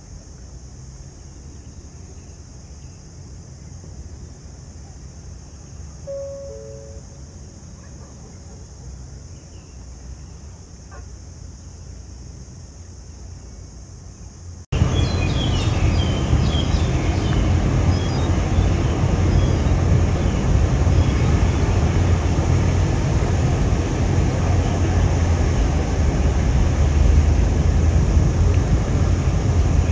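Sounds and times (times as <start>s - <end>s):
low outdoor rumble: 0.0s - 29.9s
short high chirps: 6.1s - 7.2s
loud rushing rumble: 14.7s - 29.9s.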